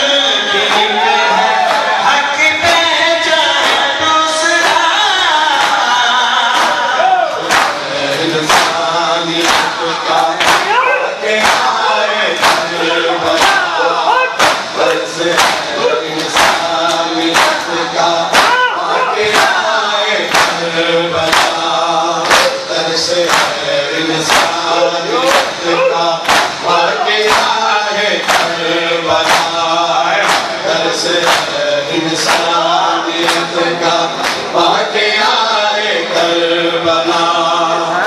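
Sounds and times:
crowd of men chanting: 0:00.0 - 0:38.0
man chanting into a microphone: 0:00.0 - 0:38.0.

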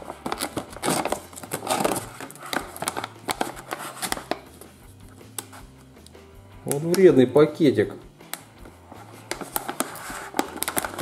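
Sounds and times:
plastic foil bag crinkling: 0:00.0 - 0:04.5, 0:09.3 - 0:11.0.

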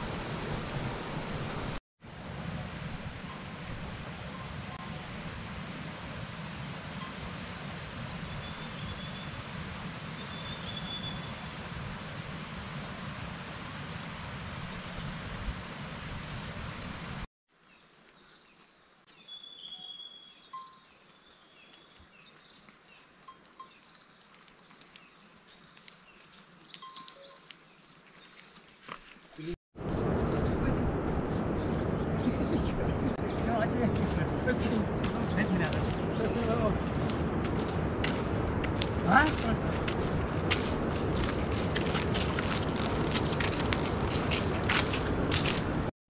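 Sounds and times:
light clinks and ticks: 0:22.7 - 0:28.4
steady rushing noise: 0:29.8 - 0:45.9.

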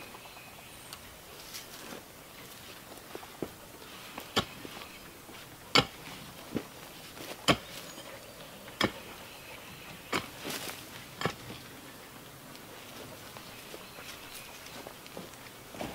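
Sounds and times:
digging tool chopping into soil: 0:05.7 - 0:06.0, 0:07.4 - 0:07.8.

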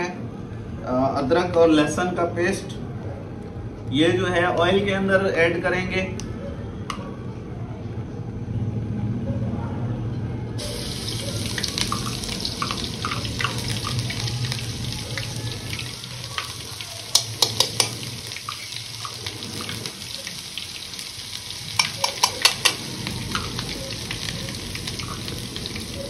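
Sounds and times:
paste sizzling in hot oil: 0:10.6 - 0:26.0
spoon tapping a cup: 0:17.2 - 0:18.0, 0:21.8 - 0:22.8.

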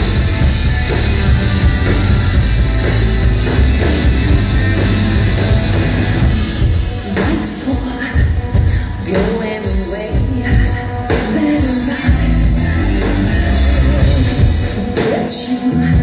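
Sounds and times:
drums: 0:00.0 - 0:16.0
electric guitars: 0:00.0 - 0:16.0
woman singing lead: 0:05.6 - 0:16.0.

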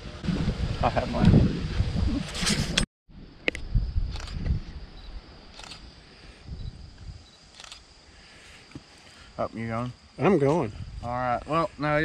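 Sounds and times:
camera shutter clicking: 0:07.5 - 0:07.8.

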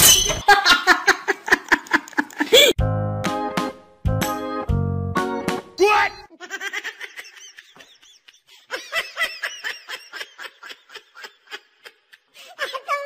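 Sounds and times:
person giggling: 0:00.4 - 0:02.8, 0:06.3 - 0:13.0.

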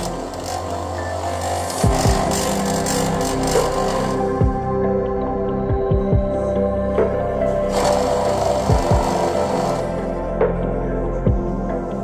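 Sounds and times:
wood lathe whirring: 0:00.0 - 0:04.4, 0:07.4 - 0:10.4
background music: 0:00.0 - 0:12.0.

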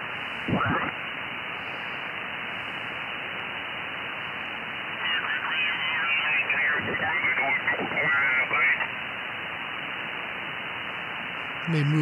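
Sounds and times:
radio receiver hiss: 0:00.0 - 0:12.0
garbled radio voice: 0:05.0 - 0:08.9, 0:11.6 - 0:12.0.

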